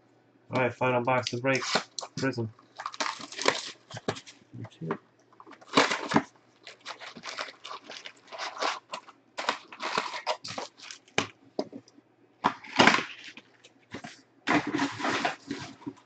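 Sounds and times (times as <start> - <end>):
foil packs crinkling: 1.4 - 4.4, 5.4 - 11.4, 12.4 - 16.0.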